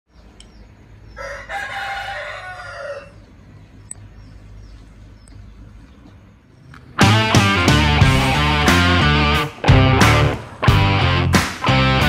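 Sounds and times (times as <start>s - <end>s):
rooster crowing: 1.1s - 3.3s.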